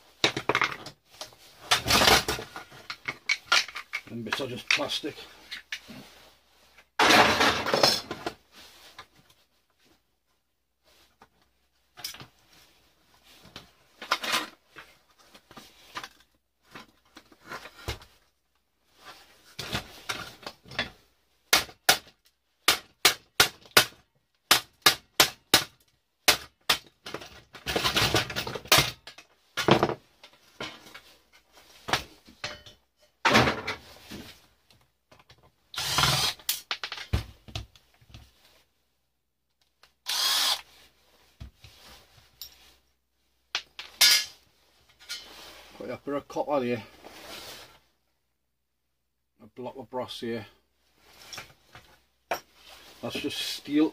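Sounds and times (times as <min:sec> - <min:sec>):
rattling and scraping handling: 0:27.0 - 0:34.5, 0:43.6 - 0:45.8.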